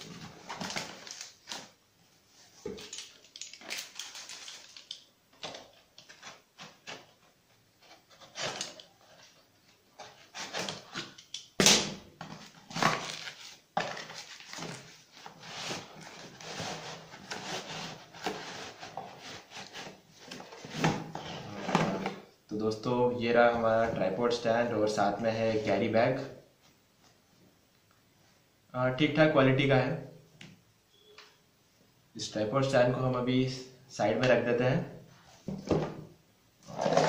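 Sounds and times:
plastic packaging crinkling: 0.2 - 1.8, 2.7 - 5.1, 12.4 - 16.2.

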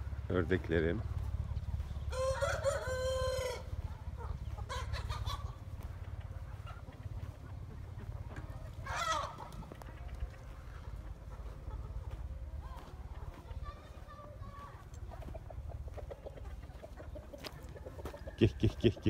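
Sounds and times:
chickens clucking: 0.0 - 19.0
rooster crowing: 2.1 - 3.9.

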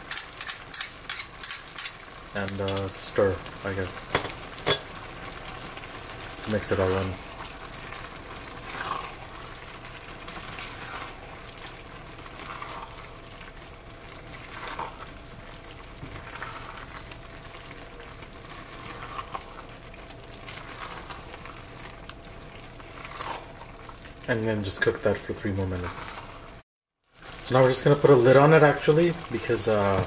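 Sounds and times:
spoon stirring: 0.0 - 2.9
vegetables cooking in pan: 0.0 - 30.0.

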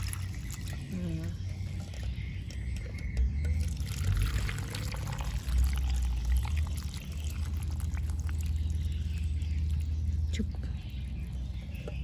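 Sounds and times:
liquid pouring and splashing: 0.0 - 0.9, 3.6 - 10.0.

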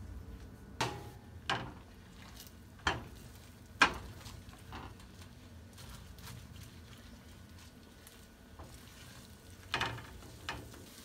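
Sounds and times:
spatula scraping frying pan: 8.6 - 11.0.

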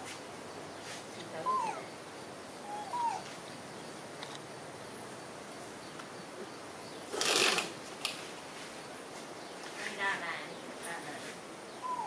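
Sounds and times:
young monkey squeaking: 1.4 - 1.9, 2.7 - 3.2.

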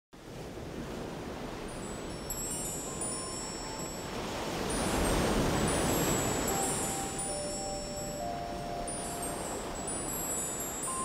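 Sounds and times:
high held tones: 4.9 - 11.0.

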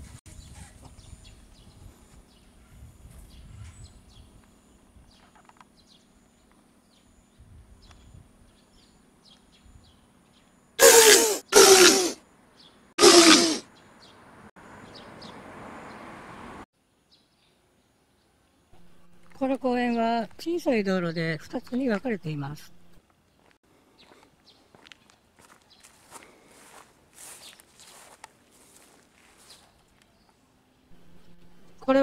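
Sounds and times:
loud voice-like cries: 10.8 - 12.2, 13.0 - 13.6.

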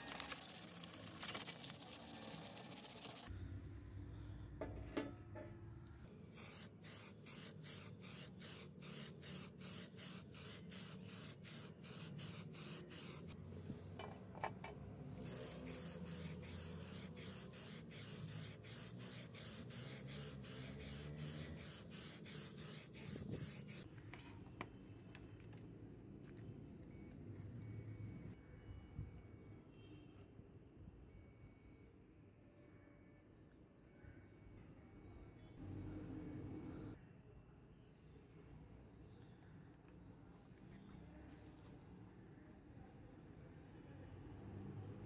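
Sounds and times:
multimeter continuity beeps: 33.9 - 37.0.

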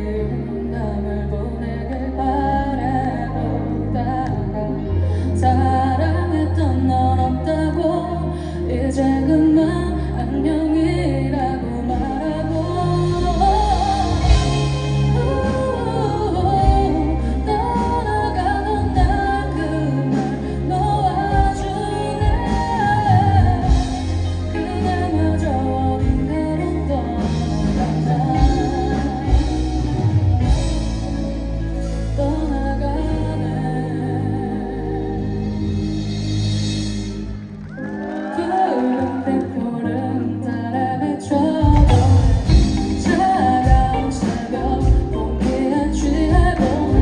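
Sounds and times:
electric guitar: 0.0 - 47.0
woman singing into a microphone: 0.0 - 47.0
drums: 11.2 - 39.1, 41.4 - 47.0.

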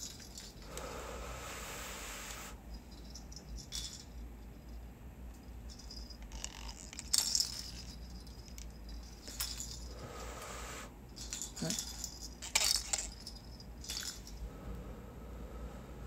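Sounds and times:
light clinking rattles: 0.0 - 0.8, 2.6 - 10.1, 11.0 - 14.7
hissy puffs of breath: 0.6 - 2.6, 9.8 - 11.0, 14.4 - 16.0.

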